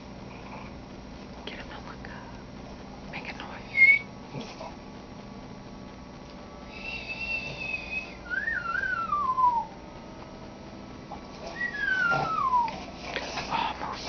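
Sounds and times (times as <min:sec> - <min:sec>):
person whistling: 0:03.7 - 0:04.1, 0:06.7 - 0:09.7, 0:11.5 - 0:12.8.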